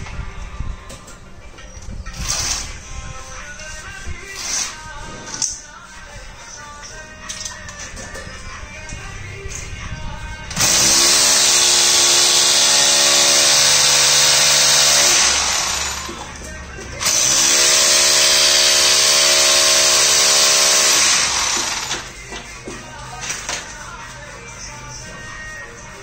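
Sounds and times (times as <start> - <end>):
electric drill whining: 2.1 - 2.8, 10.5 - 16.3, 17.0 - 22.2.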